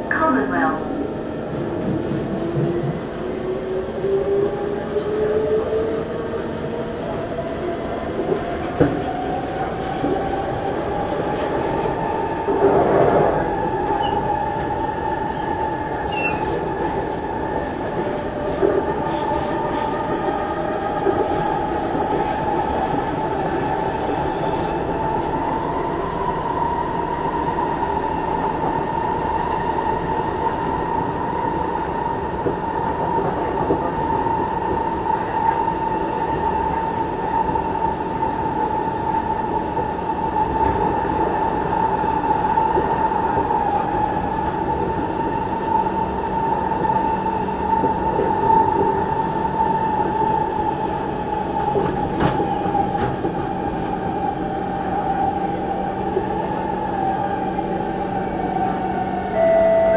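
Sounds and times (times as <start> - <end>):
train rolling rumble: 0.0 - 59.9
high-pitched train whine: 54.9 - 59.9.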